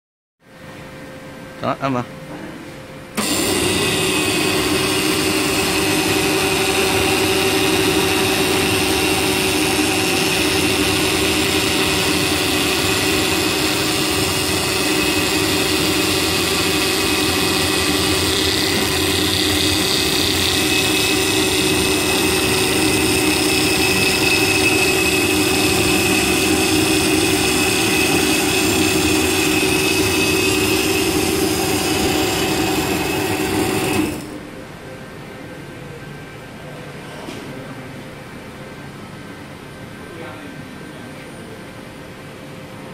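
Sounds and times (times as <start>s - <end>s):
brush trimming machine running: 3.2s - 34.4s.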